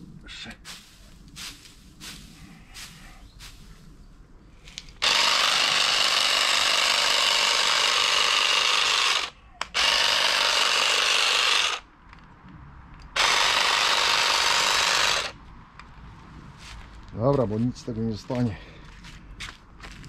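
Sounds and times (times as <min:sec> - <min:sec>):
electric shears trimming shrub: 0:05.0 - 0:11.8, 0:13.2 - 0:15.4.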